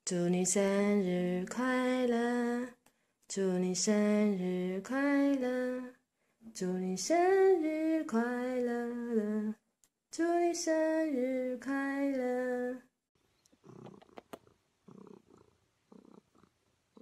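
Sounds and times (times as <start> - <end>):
woman singing unaccompanied: 0.0 - 12.9.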